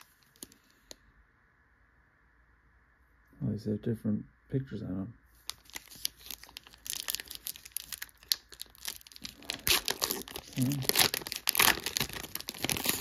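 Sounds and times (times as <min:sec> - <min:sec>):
foil wrapper tearing and crumpling: 0:05.4 - 0:13.0.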